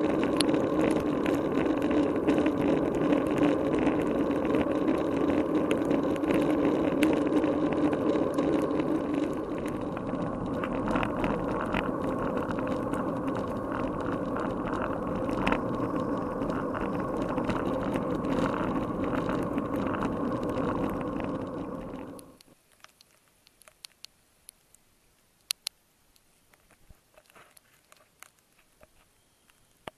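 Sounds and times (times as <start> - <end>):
muffled wind and tyre rumble: 0.0 - 22.5
clicks and taps: 22.2 - 24.8, 25.4 - 29.9.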